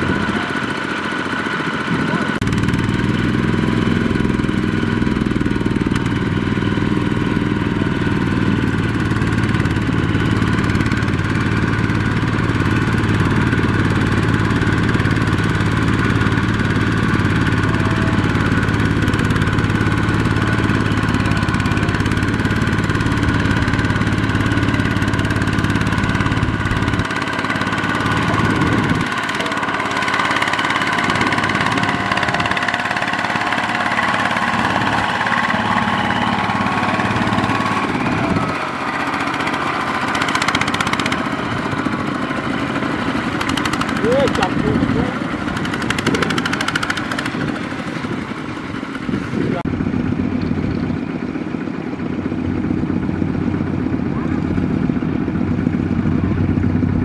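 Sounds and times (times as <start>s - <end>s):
diesel tractor engine under load: 0.0s - 57.0s.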